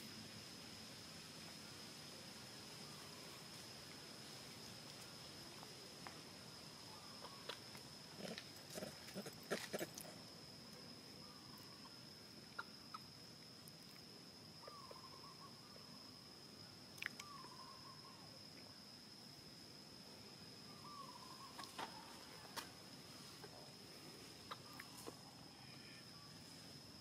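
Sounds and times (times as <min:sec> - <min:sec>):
animal clicks and grunts: 0:08.2 - 0:10.2.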